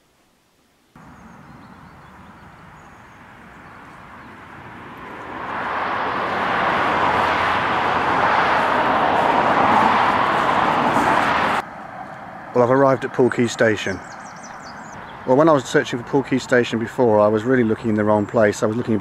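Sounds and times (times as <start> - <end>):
car tyre noise: 1.0 - 13.2.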